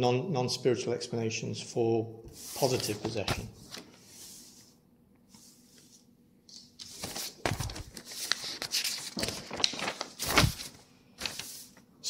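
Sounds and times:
rustling handling noise: 2.3s - 4.7s, 5.3s - 11.8s.

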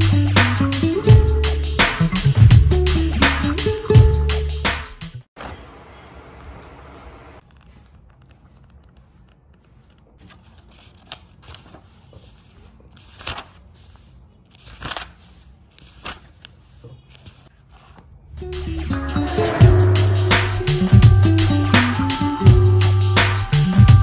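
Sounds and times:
paper pages turning: 6.2s - 18.3s.

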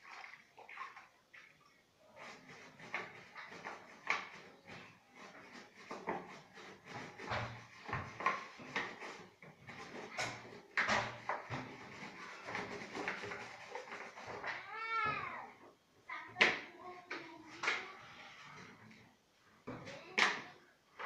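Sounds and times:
plastic containers knocking: 2.9s - 15.3s.

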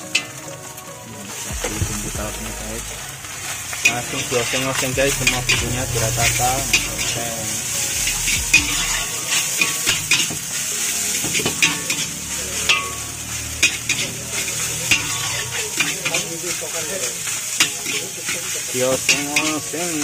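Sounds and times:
food sizzling: 0.0s - 20.0s
metal spatula clanking on wok: 11.2s - 16.3s, 17.6s - 20.0s.

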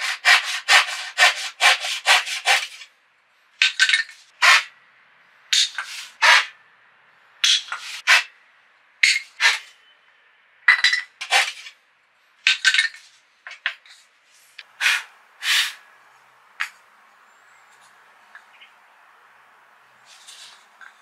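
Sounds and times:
hand saw rasping strokes: 0.0s - 2.9s, 4.4s - 4.7s, 5.8s - 6.5s, 7.7s - 8.3s, 11.2s - 11.7s.

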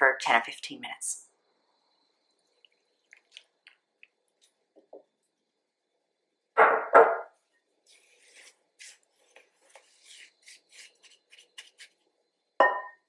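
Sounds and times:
spatula scraping crumbs in a bowl: 9.7s - 12.0s.

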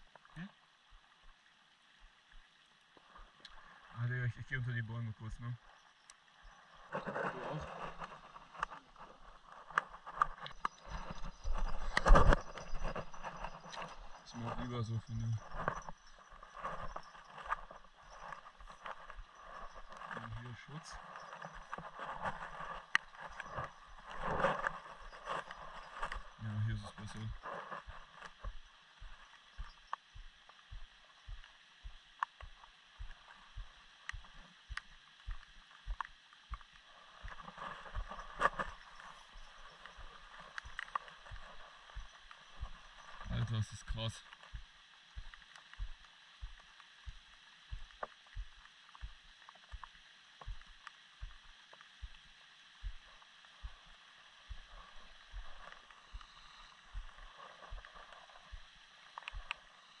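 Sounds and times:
steady rain hiss: 0.0s - 60.0s
water dripping from trees: 7.9s - 60.0s
dull low thumps: 26.1s - 36.6s, 44.5s - 49.2s.

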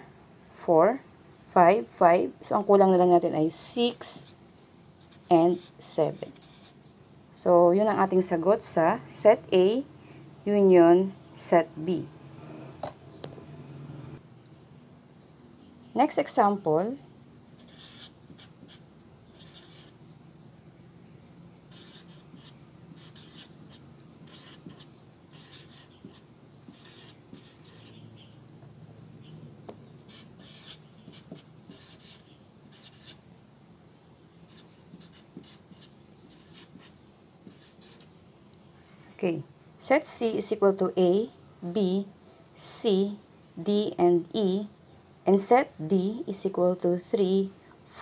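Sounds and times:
marker writing on paper: 3.9s - 4.4s, 5.0s - 6.8s, 17.6s - 20.0s, 21.7s - 28.1s, 30.0s - 33.2s, 34.5s - 38.1s.

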